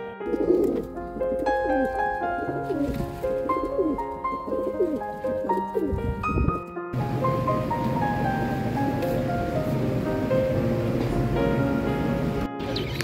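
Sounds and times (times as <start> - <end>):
background music with piano-like notes: 0.0 - 13.0
pigeons cooing: 0.2 - 6.0.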